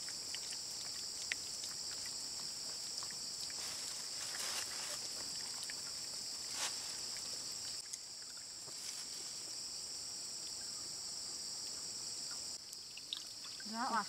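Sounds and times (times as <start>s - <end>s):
insects chorus: 0.0s - 14.0s
soft rustles: 3.6s - 5.3s, 6.4s - 7.4s, 8.7s - 9.5s.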